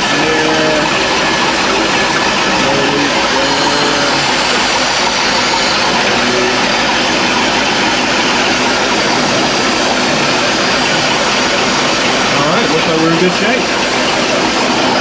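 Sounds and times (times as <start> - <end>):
boat engine idling: 0.0 - 15.0.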